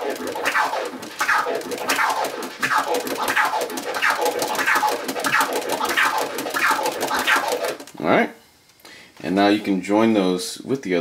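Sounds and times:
vinyl record scratching: 0:00.0 - 0:07.9.

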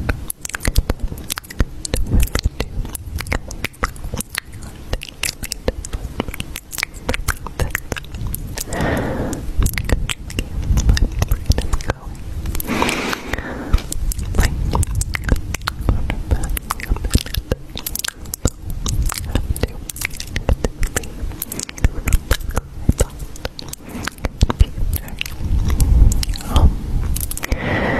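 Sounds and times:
low rumble: 0:00.9 - 0:27.9
clicking and crunching: 0:09.6 - 0:27.6.

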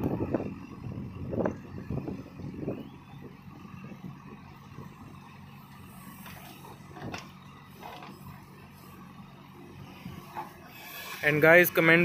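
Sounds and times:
diesel engine running: 0:00.0 - 0:12.0.

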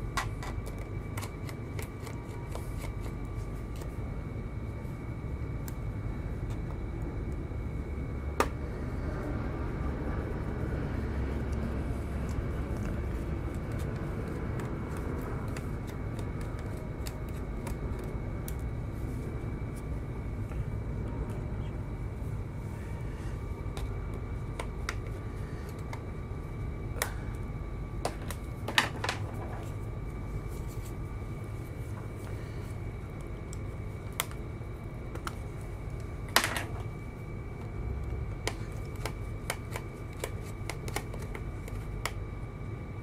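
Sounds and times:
low hum with faint whine: 0:00.0 - 0:43.0.

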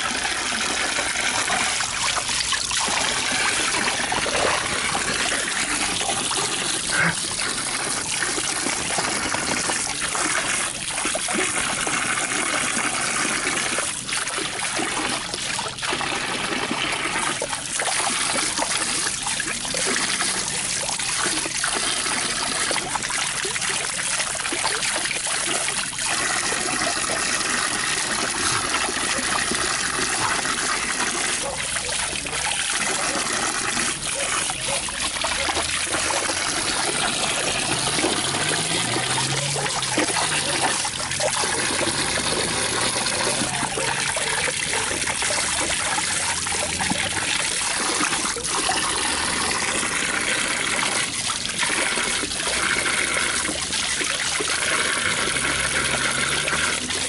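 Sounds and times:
running water splashing: 0:00.0 - 0:57.0.

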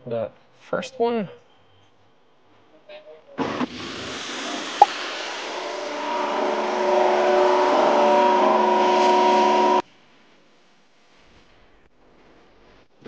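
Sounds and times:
pressurized water spraying hiss: 0:03.5 - 0:05.8.

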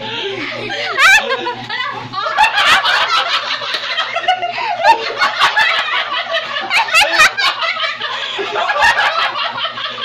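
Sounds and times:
people laughing loudly: 0:00.1 - 0:10.0.

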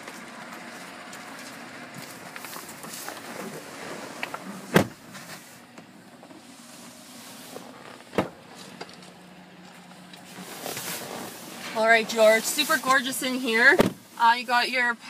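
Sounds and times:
truck doors shutting: 0:02.3 - 0:05.6.

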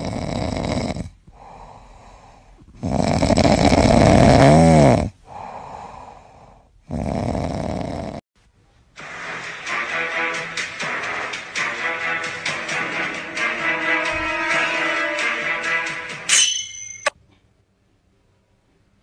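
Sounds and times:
kitten snoring: 0:00.0 - 0:08.2.

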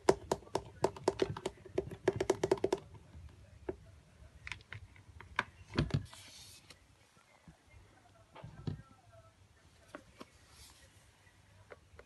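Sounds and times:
fingers tapping on plastic drawer: 0:00.0 - 0:02.9.

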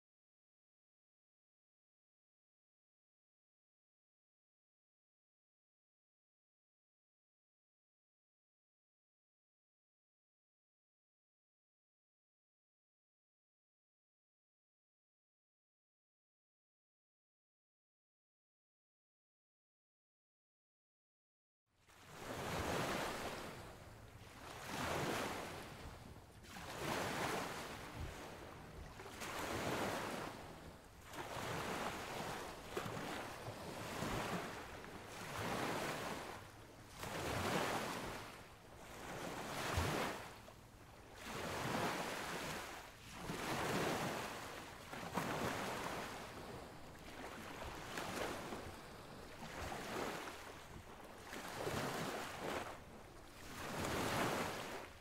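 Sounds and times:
waves washing onto sandy beach: 0:21.9 - 0:55.0.

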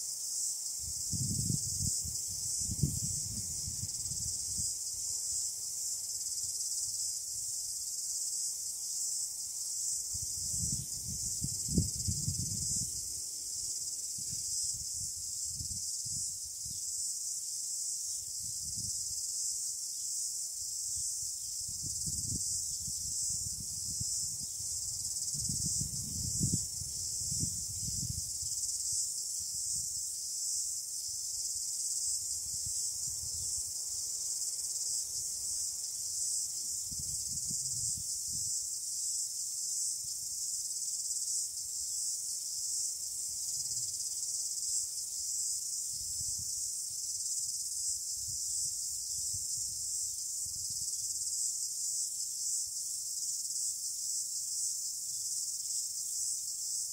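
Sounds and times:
crickets chorus: 0:00.0 - 0:56.9
wind rumbling on microphone: 0:00.8 - 0:04.8, 0:10.1 - 0:16.8, 0:18.3 - 0:19.2, 0:21.6 - 0:30.0, 0:36.7 - 0:38.6, 0:45.9 - 0:46.6, 0:48.0 - 0:51.1.

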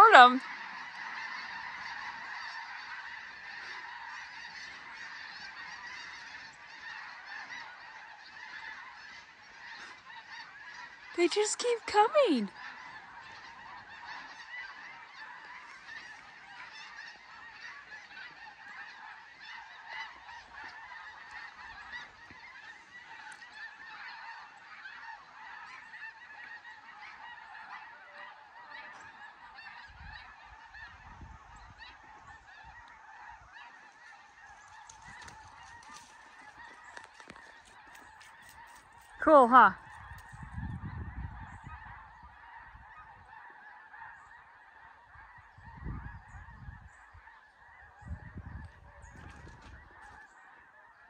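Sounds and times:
geese honking: 0:00.0 - 0:51.0.

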